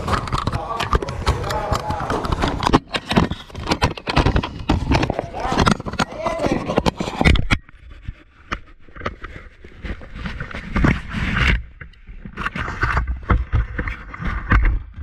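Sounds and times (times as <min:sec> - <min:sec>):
knocks and thumps: 0:00.0 - 0:07.6
clothing rustling over microphone: 0:00.0 - 0:14.6.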